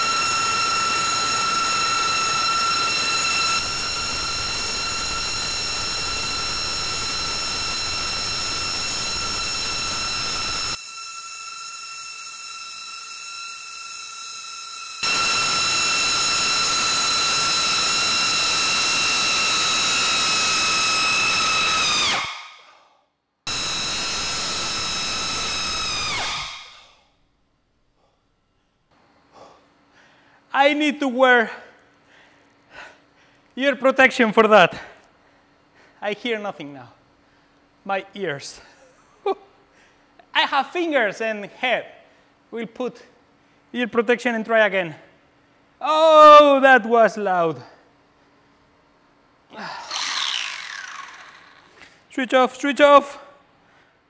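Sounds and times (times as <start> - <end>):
propellers high-pitched whine: 0.0 - 21.0, 49.8 - 51.8.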